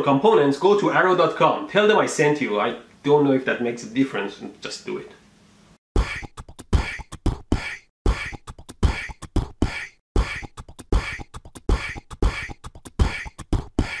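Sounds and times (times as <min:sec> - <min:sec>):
beatboxed rhythm: 0:06.0 - 0:14.0.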